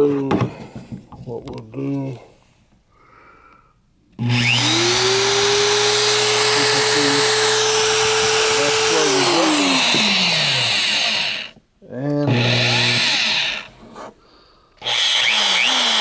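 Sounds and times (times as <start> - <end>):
electric motor whine: 4.2 - 11.6, 12.3 - 13.8, 14.8 - 16.0.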